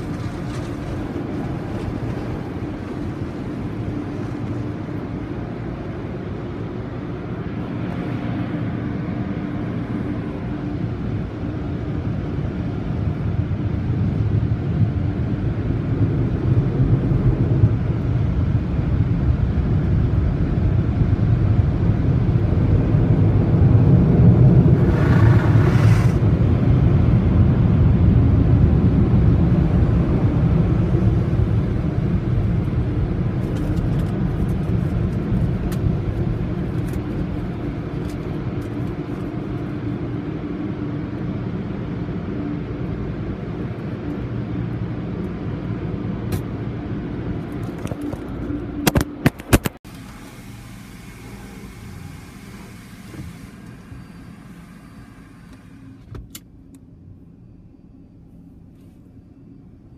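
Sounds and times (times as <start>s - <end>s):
car wash blowers rumbling: 0.0s - 56.4s.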